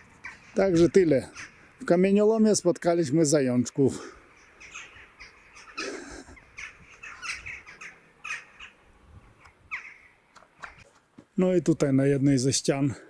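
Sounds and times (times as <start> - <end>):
crows cawing: 0.0 - 2.0, 3.9 - 10.8.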